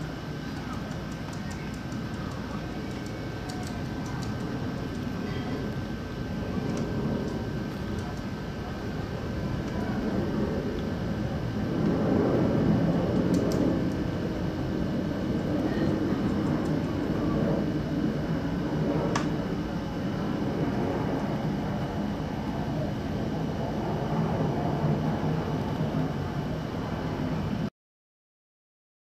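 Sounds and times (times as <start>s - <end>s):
distant jet airliner engine noise: 0.0s - 27.7s.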